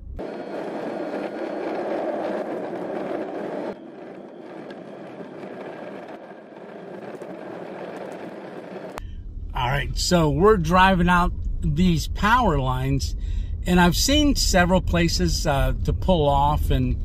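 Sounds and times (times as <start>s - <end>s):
tyre noise on unpaved track: 0.2s - 9.0s.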